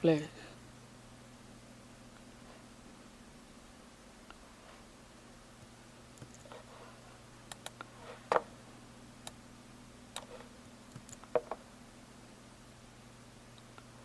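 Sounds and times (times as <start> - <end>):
faint low hum: 0.0 - 14.0
keyboard and mouse clicks: 6.2 - 6.5, 7.5 - 8.4, 10.2 - 11.6.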